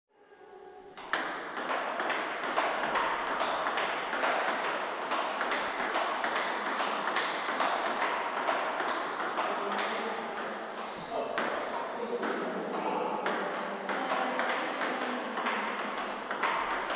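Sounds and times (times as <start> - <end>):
table tennis ball clicking: 1.0 - 10.5, 13.2 - 16.9.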